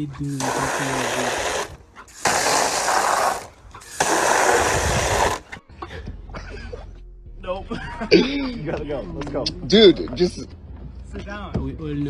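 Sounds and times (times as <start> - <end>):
hose nozzle spraying water: 0.3 - 5.5.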